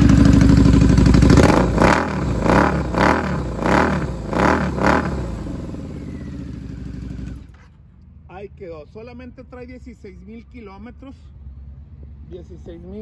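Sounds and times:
motorcycle engine idling and revving: 0.0 - 7.9.

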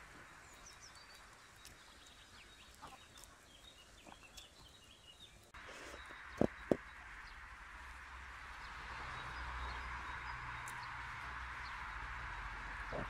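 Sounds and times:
animals eating popcorn crunches: 0.0 - 6.8
small birds chirping: 0.0 - 13.0.

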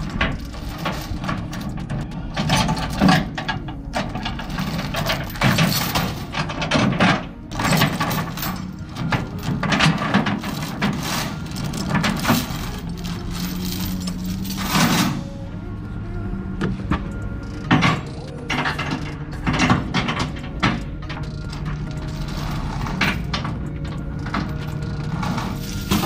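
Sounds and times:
steel chain clanking on steel plates: 0.0 - 15.3, 17.4 - 26.0.

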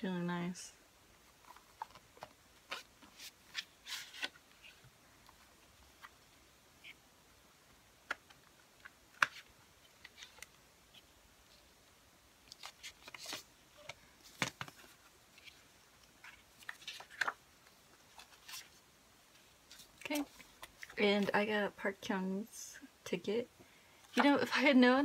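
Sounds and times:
paper inserts rustling: 1.3 - 6.3, 8.0 - 11.1, 12.4 - 21.4.

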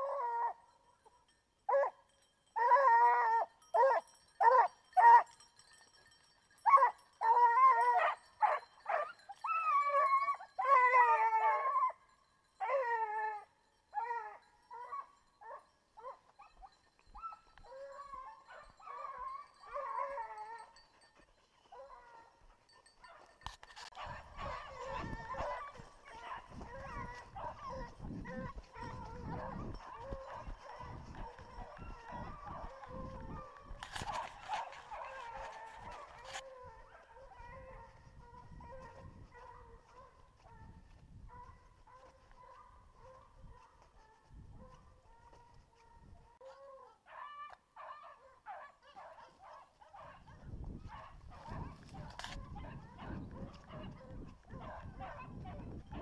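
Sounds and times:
hound baying and howling: 0.0 - 5.5, 6.6 - 56.0.

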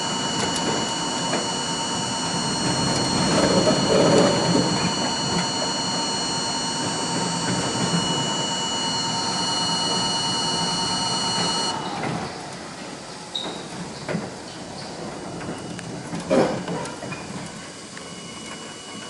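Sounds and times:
high even whine: 0.0 - 12.5
subway wheel-on-rail rumble: 11.7 - 19.0.

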